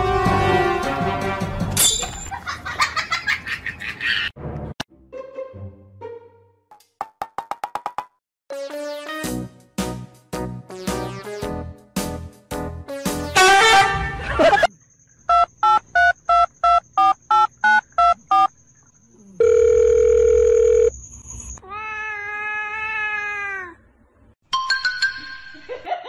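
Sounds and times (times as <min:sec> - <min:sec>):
steady phone tone: 0:19.4 - 0:21.0
cat meowing: 0:21.6 - 0:23.8.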